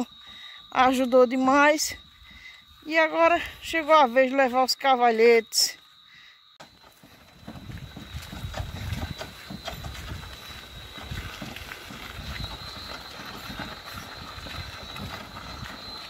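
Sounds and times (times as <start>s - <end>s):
wooden load knocking and rattling: 6.6s - 15.6s
cart rolling over dirt track: 6.6s - 16.0s.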